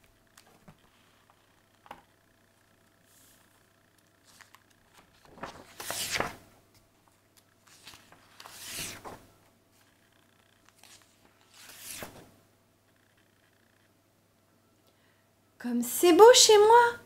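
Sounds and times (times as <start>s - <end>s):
book pages rustling: 0.2s - 2.1s, 2.8s - 12.4s.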